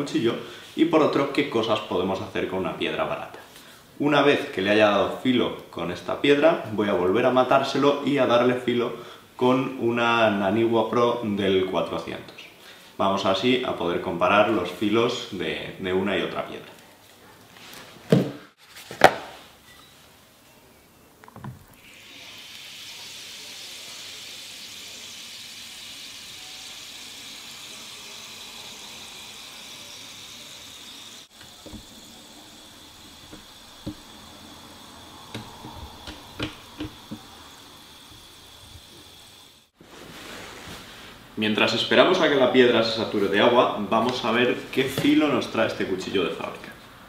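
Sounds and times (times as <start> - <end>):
whetstone fizzing in water: 21.8 - 39.8.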